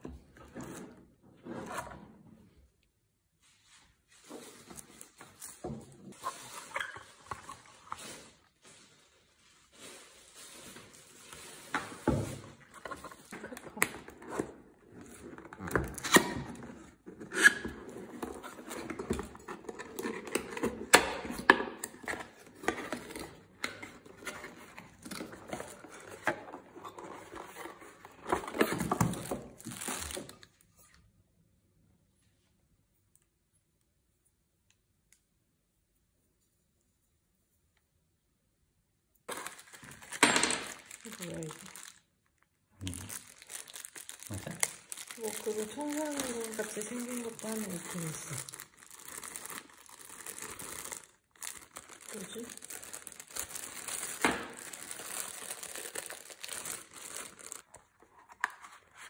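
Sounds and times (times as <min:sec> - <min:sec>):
plastic bags crinkling: 0:06.1 - 0:30.6, 0:39.3 - 0:59.0.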